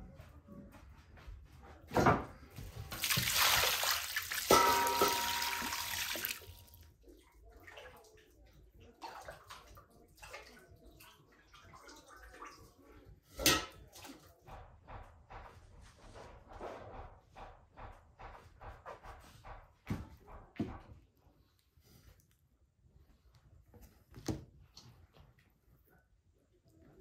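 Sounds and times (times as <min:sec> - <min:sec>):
water sloshing: 0:02.8 - 0:06.8
water splashing in a basin: 0:02.8 - 0:12.8.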